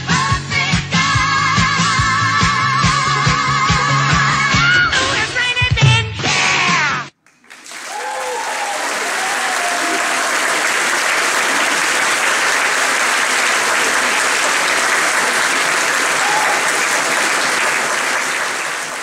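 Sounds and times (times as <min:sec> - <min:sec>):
audience applauding: 0:07.2 - 0:19.0.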